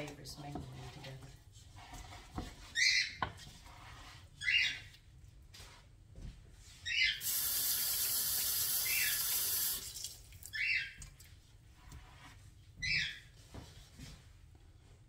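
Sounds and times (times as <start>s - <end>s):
sink tap running: 7.2s - 10.1s.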